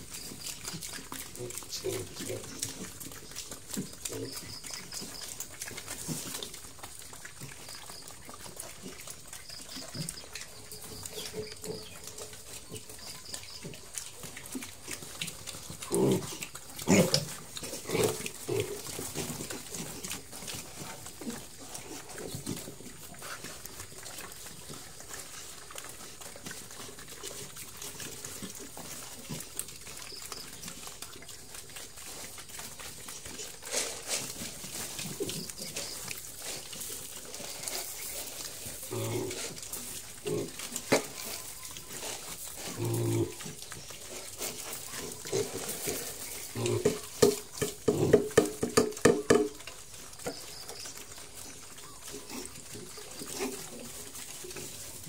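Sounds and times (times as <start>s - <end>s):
pig grunts: 0.0s - 48.5s
piglets chewing feed: 0.0s - 55.0s.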